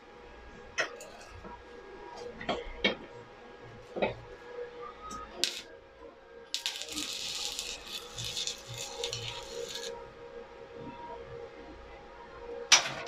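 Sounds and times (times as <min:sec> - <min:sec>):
welding arc crackling and sizzling: 0:05.3 - 0:05.7, 0:06.5 - 0:10.0.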